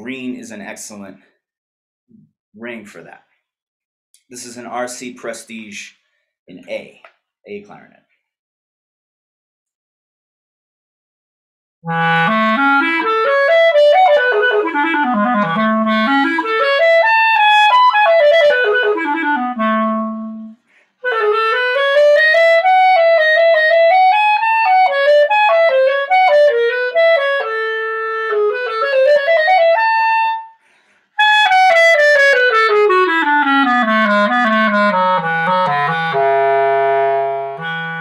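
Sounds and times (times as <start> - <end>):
solo clarinet playing: 11.8 - 30.6, 31.2 - 38.0.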